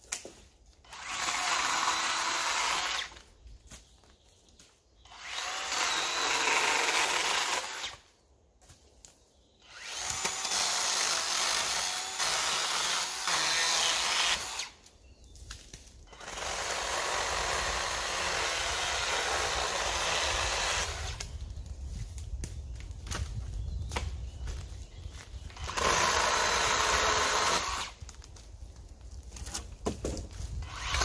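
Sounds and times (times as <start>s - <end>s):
chainsaw cutting branches: 0.9s - 3.2s, 5.1s - 8.0s, 9.6s - 14.8s, 16.1s - 21.2s, 25.5s - 28.0s, 30.5s - 31.0s.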